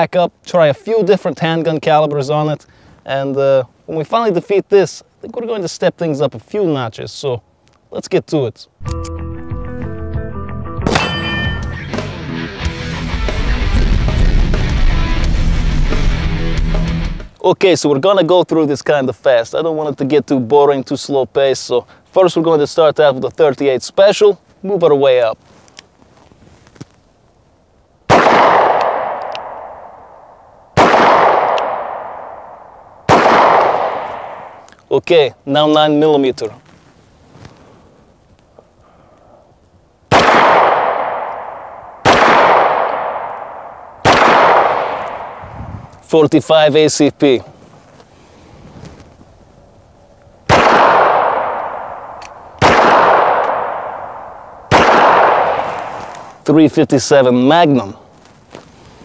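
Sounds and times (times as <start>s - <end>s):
handgun shots with echo: 10.8s - 11.4s, 28.1s - 30.1s, 30.8s - 34.6s, 40.1s - 45.4s, 50.5s - 56.1s.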